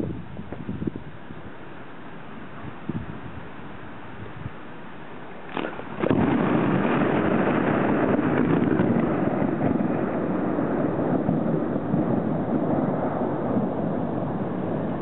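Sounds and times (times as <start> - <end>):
thunder crack and rumble: 5.5 - 15.0.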